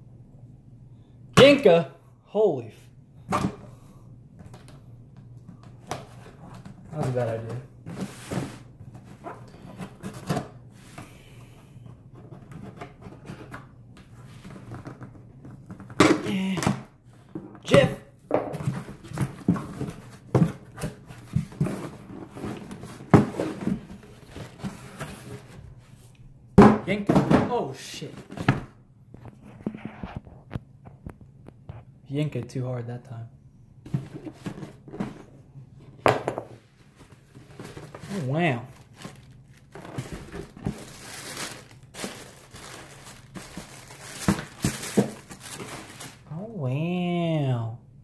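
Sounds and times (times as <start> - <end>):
cardboard scraping and rustling: 6.1 - 11.0, 18.6 - 26.0, 33.9 - 35.4, 36.6 - 46.3
paper crinkling and rustling: 36.8 - 46.3.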